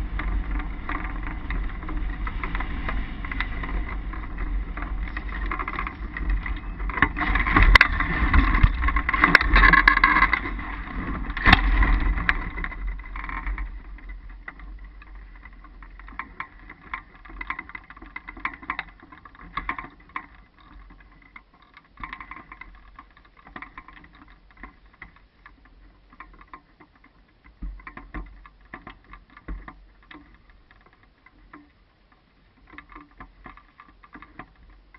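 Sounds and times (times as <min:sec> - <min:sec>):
wind rushing over microphone: 0:00.0 - 0:15.5
faint clicks and rustles: 0:00.0 - 0:34.9.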